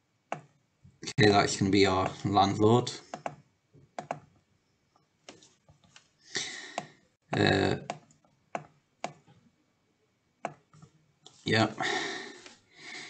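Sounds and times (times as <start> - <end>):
computer pointer clicks: 3.1 - 3.4
person breathing: 6.2 - 7.0, 11.8 - 13.0.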